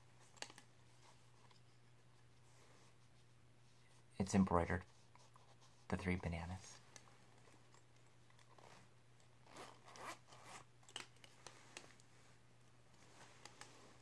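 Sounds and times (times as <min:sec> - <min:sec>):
zipper rasping open: 0:08.4 - 0:10.7.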